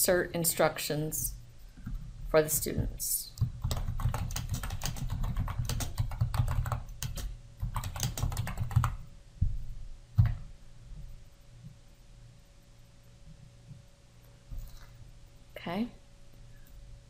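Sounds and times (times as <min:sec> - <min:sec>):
typing on computer keyboard: 0:03.4 - 0:09.0.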